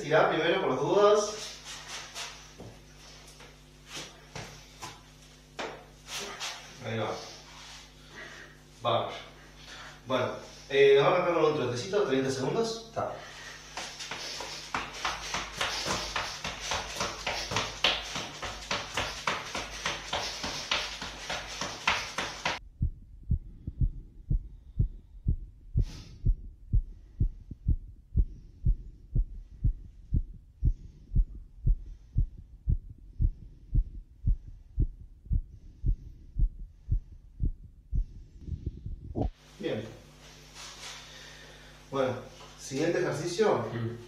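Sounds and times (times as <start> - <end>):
feet jogging on wooden floor: 13.7 - 22.6
heartbeat through stethoscope: 15.1 - 39.4.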